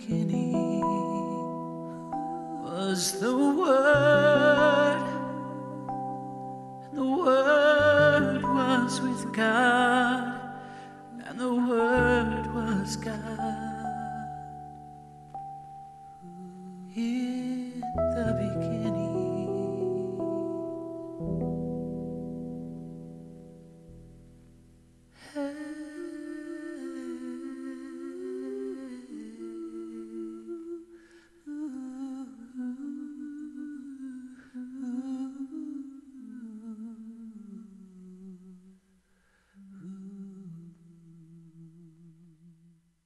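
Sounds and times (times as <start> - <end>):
person humming: 0.0 - 6.0, 6.8 - 14.6, 16.2 - 21.4.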